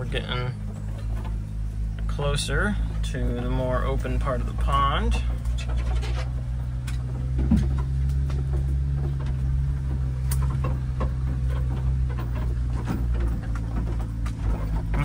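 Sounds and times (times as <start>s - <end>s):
truck engine low drone: 0.0s - 15.0s.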